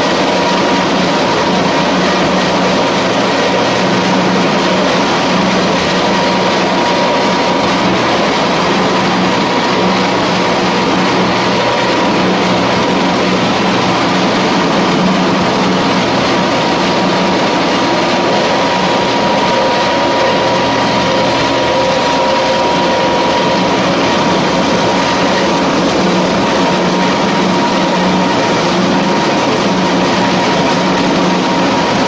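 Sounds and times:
pellet mill running: 0.0s - 32.0s.

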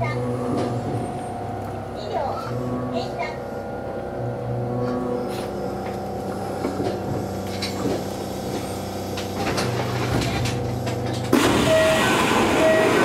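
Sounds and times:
train equipment humming: 0.0s - 13.0s
two-tone door beeps: 11.5s - 13.0s.

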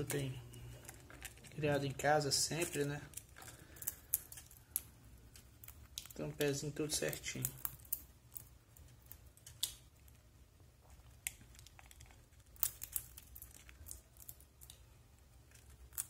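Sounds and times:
birds cracking seeds: 0.0s - 9.9s.

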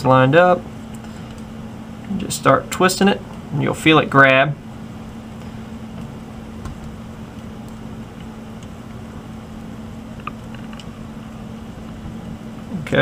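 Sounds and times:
room hum: 0.0s - 13.0s.

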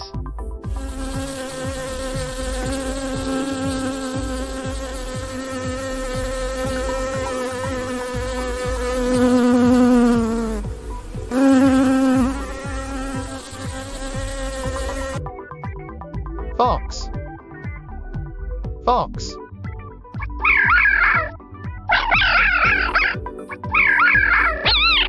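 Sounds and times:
honeybees buzzing: 0.0s - 15.2s.

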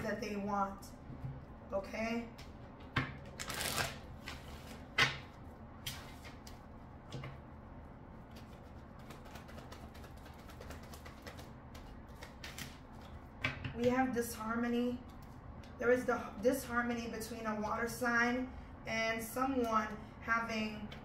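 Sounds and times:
cards shuffling: 3.2s - 6.6s, 8.3s - 13.2s.

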